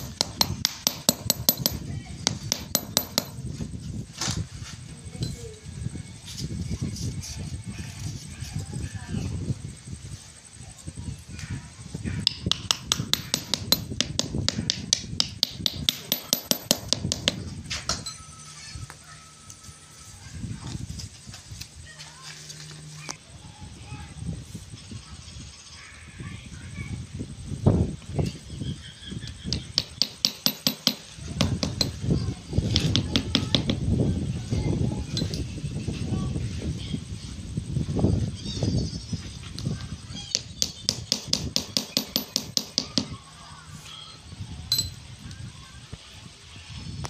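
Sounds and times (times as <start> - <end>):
hammer tapping metal: 0.0 - 3.4, 12.2 - 18.2, 29.5 - 32.0, 32.7 - 33.8, 40.3 - 43.1
metal bolt tapping: 29.5 - 32.0.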